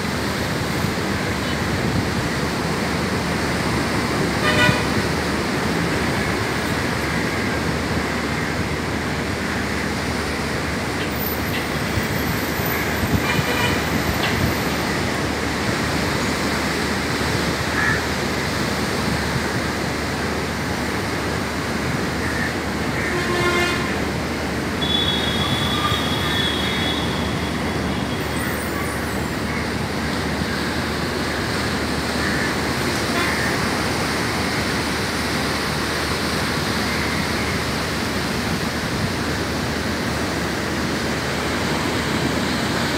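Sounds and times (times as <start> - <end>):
road traffic: 0.0 - 42.9
vehicle horn tooting: 4.4 - 5.0, 13.2 - 14.0, 23.1 - 24.0, 24.8 - 28.6.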